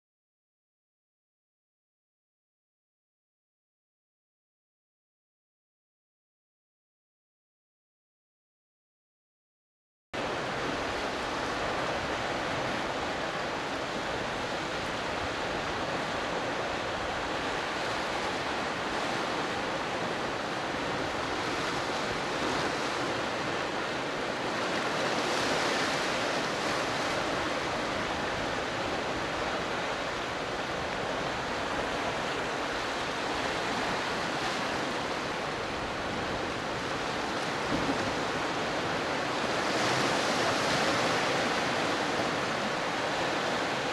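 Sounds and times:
waves breaking over rock: 0:10.2 - 0:43.9.

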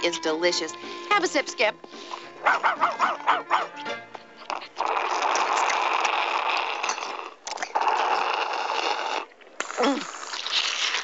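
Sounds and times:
loud slurping through a straw: 0:04.5 - 0:11.0.

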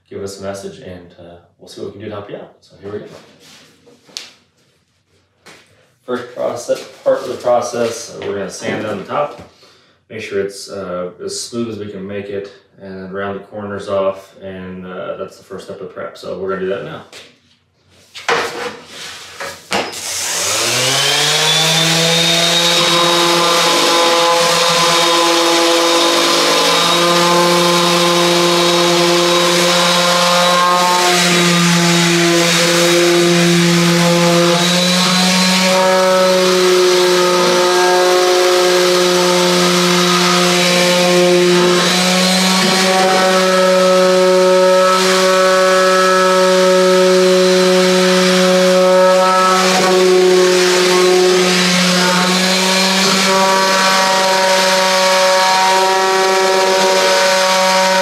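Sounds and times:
orbital sander whining: 0:19.9 - 0:58.0.

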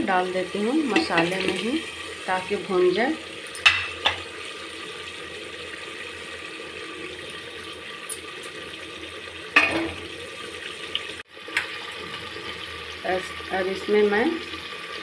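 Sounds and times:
gravy sizzling and bubbling: 0:00.0 - 0:15.0
spoon clanking on pot: 0:03.6 - 0:04.2.

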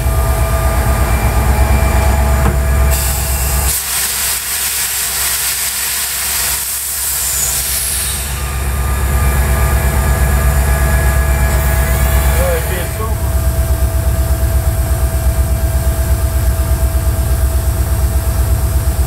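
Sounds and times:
locomotive engine rumble: 0:00.0 - 0:03.7.

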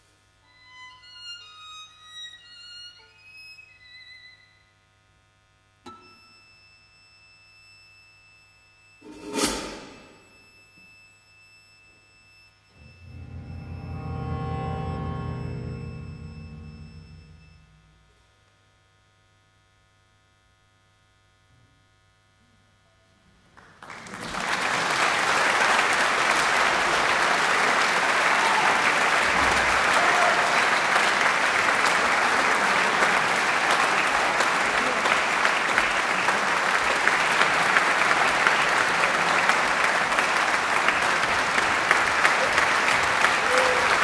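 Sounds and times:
audience applause: 0:23.6 - 0:44.0.

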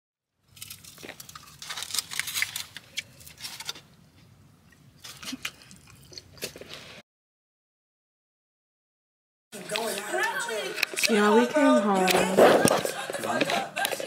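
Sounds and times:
crunching and crackling clicks: 0:00.5 - 0:03.9.

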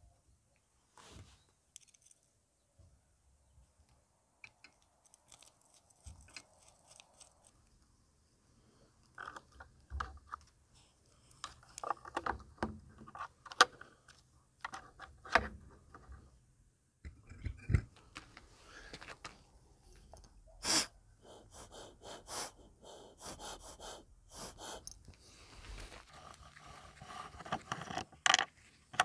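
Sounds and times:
breaths through rubber hose: 0:20.6 - 0:27.4.

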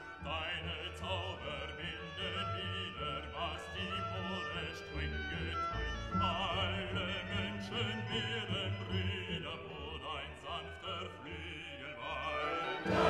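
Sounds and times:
classical music: 0:00.0 - 0:13.0
operatic singing with vibrato: 0:00.0 - 0:13.0.

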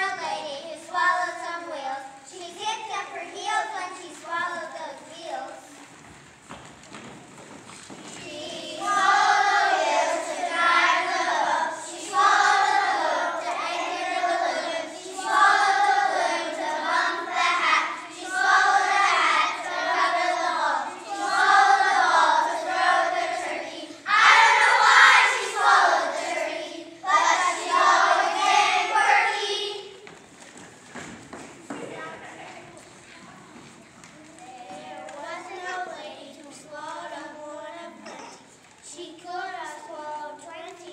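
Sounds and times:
children's choir singing: 0:08.0 - 0:30.2.

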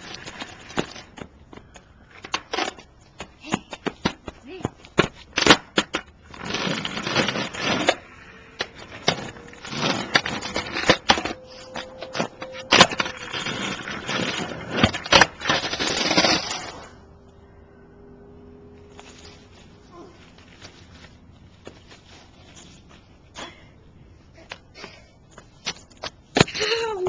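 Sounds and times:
skateboard clacking on ground: 0:00.0 - 0:16.8
skateboard wheels rolling on asphalt: 0:00.0 - 0:17.3, 0:18.7 - 0:23.3, 0:24.5 - 0:26.8.

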